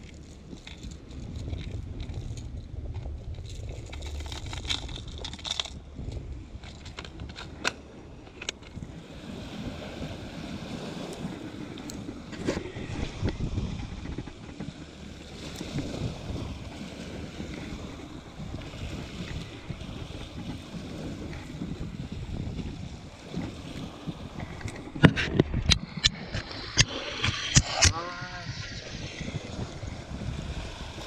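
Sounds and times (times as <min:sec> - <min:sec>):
waves washing over rocks: 0:00.0 - 0:31.0
wind buffeting microphone: 0:00.0 - 0:31.0
plastic lures clicking and rattling: 0:03.1 - 0:08.8.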